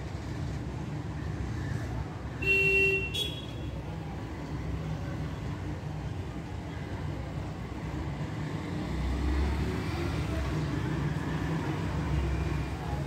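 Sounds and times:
low traffic rumble: 0:00.0 - 0:13.0
vehicle horn: 0:02.4 - 0:03.7.

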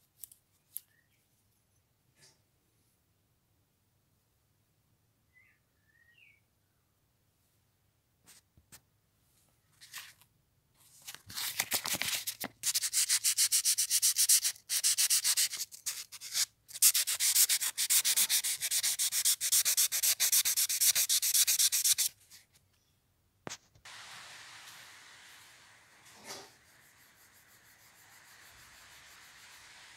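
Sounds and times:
sandpaper rubbing metal: 0:12.6 - 0:22.2, 0:24.5 - 0:29.9.

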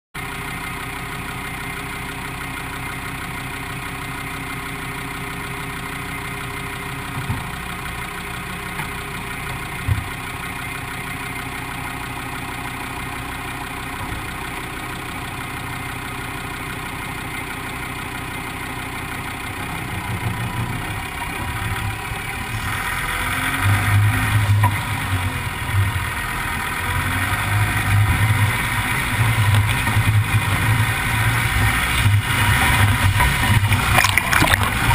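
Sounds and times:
car engine idling: 0:00.2 - 0:34.9
tyres on gravel: 0:27.6 - 0:34.9.

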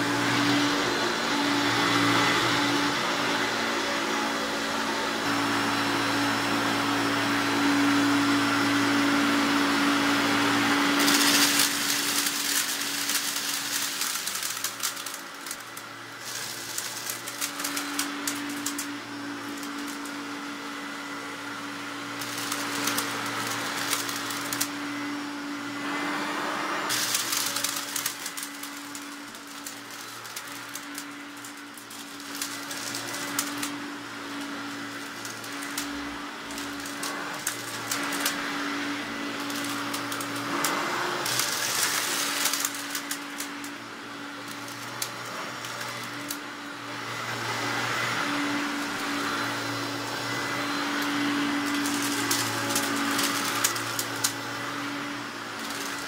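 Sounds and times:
vacuum cleaner on carpet: 0:00.0 - 0:56.0
crumbs clicking and rattling: 0:10.2 - 0:20.4, 0:22.1 - 0:24.9, 0:26.9 - 0:43.8, 0:44.4 - 0:46.4, 0:47.7 - 0:56.0.

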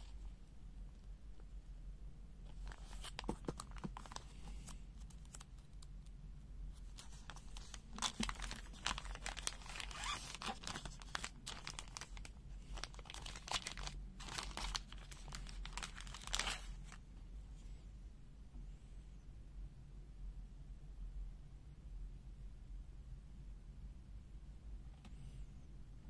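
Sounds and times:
plastic bag crinkling and tearing: 0:02.5 - 0:05.5, 0:06.8 - 0:17.0.

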